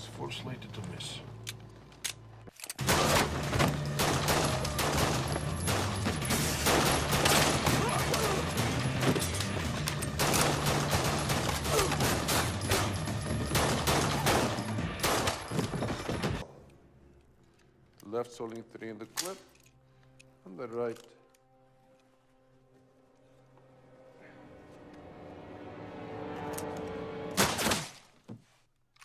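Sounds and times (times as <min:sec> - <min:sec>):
film music score: 0:00.0 - 0:28.1
rapid pistol shots: 0:02.8 - 0:07.9, 0:10.1 - 0:15.5.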